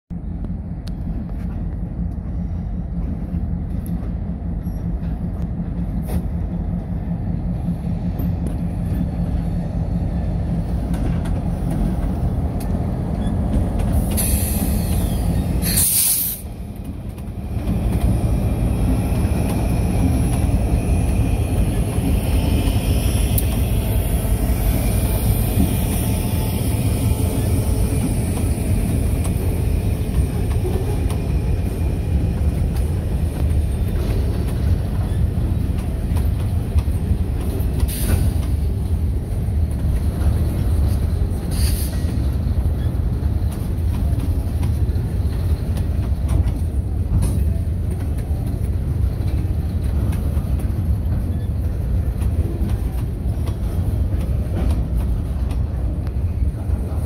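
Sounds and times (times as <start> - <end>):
diesel locomotives rumbling past: 0.1 - 57.0
freight cars rolling on rails: 0.2 - 57.0
air hiss: 14.0 - 16.5.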